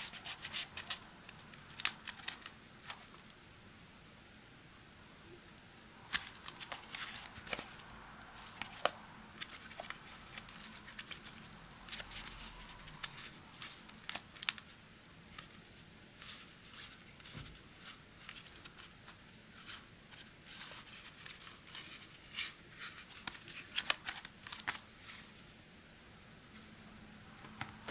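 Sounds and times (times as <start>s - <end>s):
wallet clicking and rustling: 0.0s - 3.3s, 6.1s - 14.7s, 20.5s - 24.9s.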